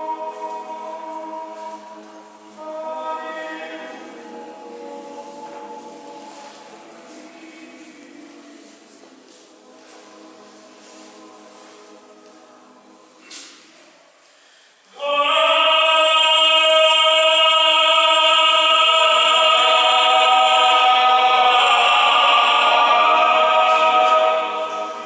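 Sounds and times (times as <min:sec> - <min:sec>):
voices singing a chant in harmony: 0:00.0 - 0:13.5, 0:14.9 - 0:25.0.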